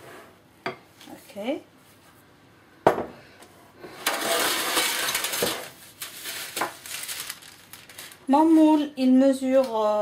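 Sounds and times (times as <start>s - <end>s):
baking parchment crinkling: 4.1s - 9.8s.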